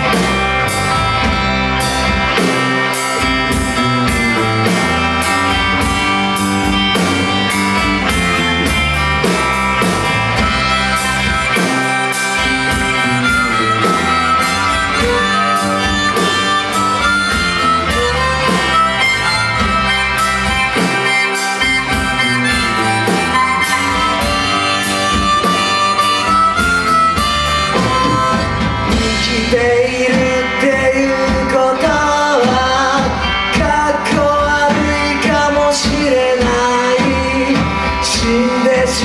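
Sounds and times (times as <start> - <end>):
harmonica solo: 0.0 - 30.8
electric bass: 0.0 - 39.0
electric guitar: 0.0 - 39.0
steady drum beat: 0.0 - 39.0.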